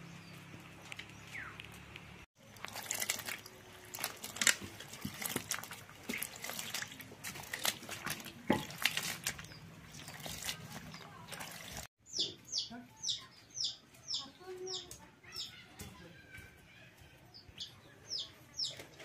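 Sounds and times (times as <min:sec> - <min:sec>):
water splashing and sloshing: 0:01.6 - 0:12.0
hand swishing mushrooms in water: 0:02.4 - 0:11.9.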